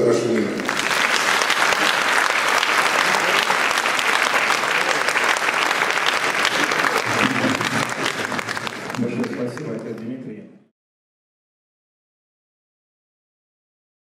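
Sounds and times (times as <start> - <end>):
audience applauding: 0.0 - 10.3
man speaking: 8.9 - 10.5.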